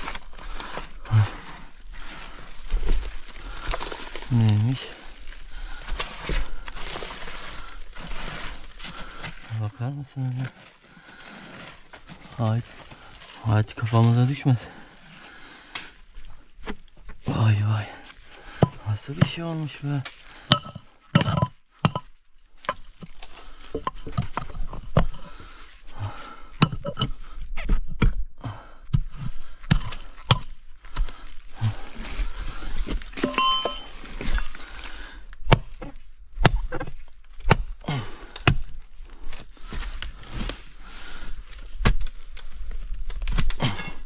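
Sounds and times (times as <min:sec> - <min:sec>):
metallic clink: 0:33.2 - 0:33.9
pickaxe chopping tree roots: 0:35.4 - 0:40.6, 0:41.6 - 0:42.3, 0:43.0 - 0:44.0.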